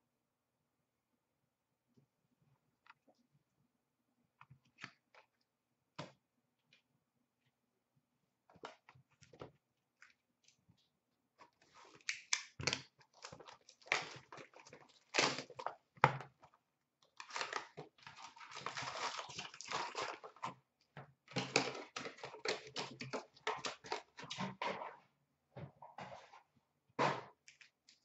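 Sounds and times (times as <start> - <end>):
crinkling of wrappers and cardboard: 8.6 - 24.9.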